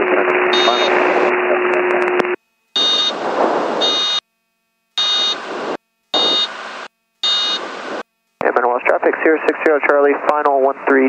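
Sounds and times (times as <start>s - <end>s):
cockpit noise: 0.0s - 4.3s
high buzzing warning tone: 0.0s - 8.4s
radio hiss with hum: 0.0s - 11.0s.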